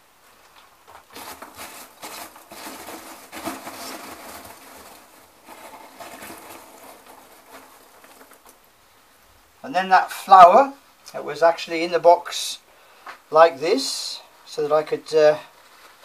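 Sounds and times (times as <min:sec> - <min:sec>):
packing material rustling: 0:01.0 - 0:08.7, 0:15.5 - 0:16.0.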